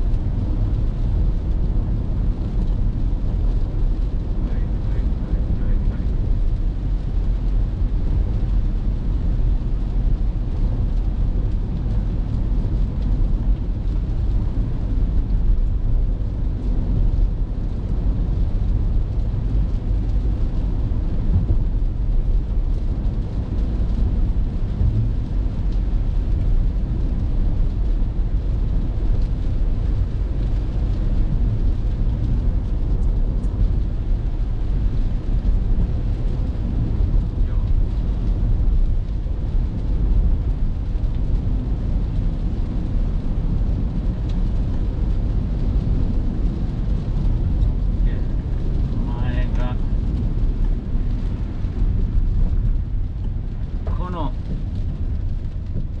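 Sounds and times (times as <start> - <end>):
car engine running: 0.0 - 56.0
tyres on wet road: 0.0 - 56.0.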